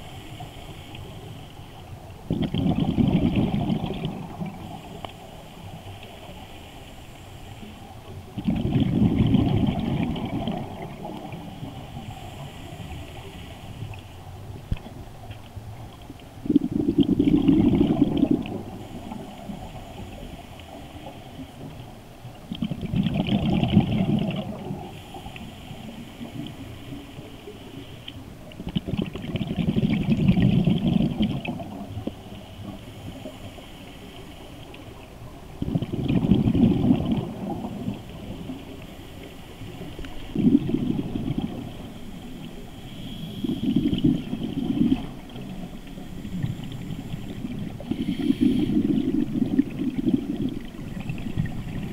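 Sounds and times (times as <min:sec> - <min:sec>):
exhaled bubbles gurgling underwater: 0:00.0 - 0:51.9
regulator hiss: 0:41.8 - 0:49.2.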